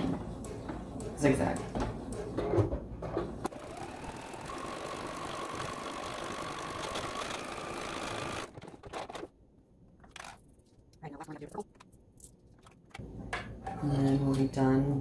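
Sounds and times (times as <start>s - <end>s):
sewing machine running: 3.5s - 8.5s.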